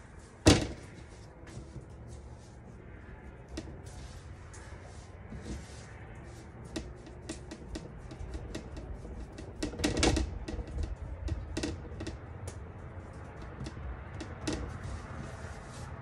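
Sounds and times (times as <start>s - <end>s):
fingertips tapping pizza dough: 2.9s - 16.0s.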